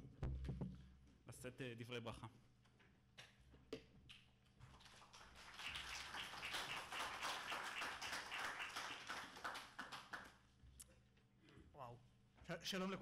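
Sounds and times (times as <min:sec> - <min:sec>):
audience applauding: 0:04.8 - 0:10.4.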